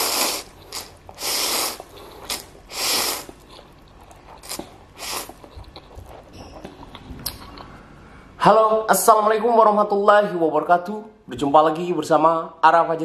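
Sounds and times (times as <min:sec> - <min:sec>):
noodles being slurped: 0:00.0 - 0:06.2
chewing and wet mouth clicks: 0:03.2 - 0:07.7.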